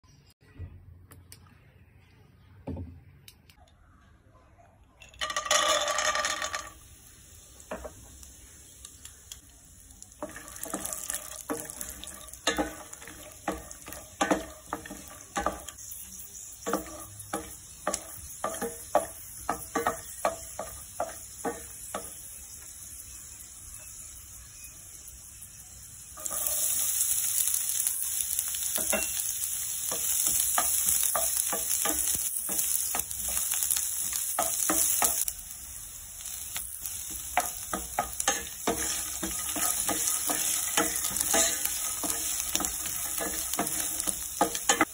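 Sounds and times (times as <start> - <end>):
peanuts sizzling in hot oil: 5.2 - 44.9
wooden spatula scraping a pan: 37.4 - 44.9.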